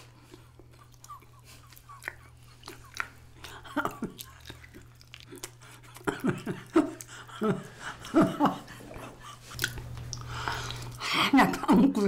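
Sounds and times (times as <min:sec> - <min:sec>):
woman chewing sticky food: 0:00.0 - 0:11.1
woman chuckling: 0:00.8 - 0:04.5, 0:06.0 - 0:09.6.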